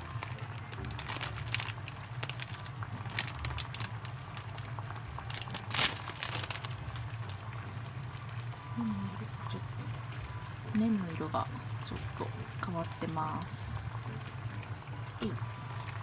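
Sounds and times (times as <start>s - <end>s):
plastic packet crinkling: 0.0s - 7.2s.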